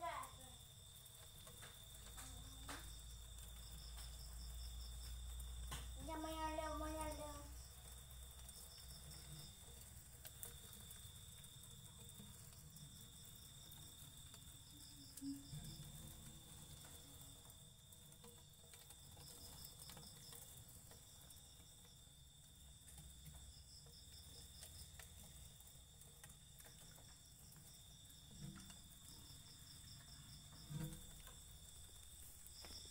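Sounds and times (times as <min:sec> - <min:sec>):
crickets trilling: 0:00.0 - 0:32.9.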